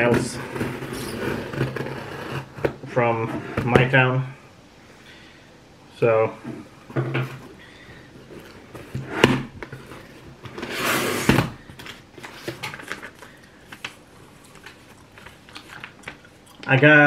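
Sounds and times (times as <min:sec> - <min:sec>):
cardboard and paper rustling: 0:07.1 - 0:16.8.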